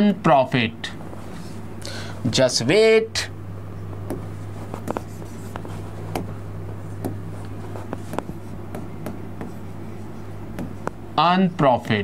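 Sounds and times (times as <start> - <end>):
steady low hum: 0.0 - 12.0
stylus tapping on touchscreen: 4.0 - 6.3, 7.0 - 7.2, 7.8 - 9.7, 10.5 - 11.0.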